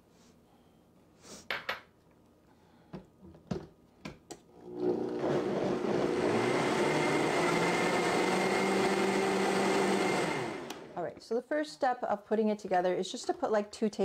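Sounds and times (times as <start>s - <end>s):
blender motor running: 4.6s - 11.0s.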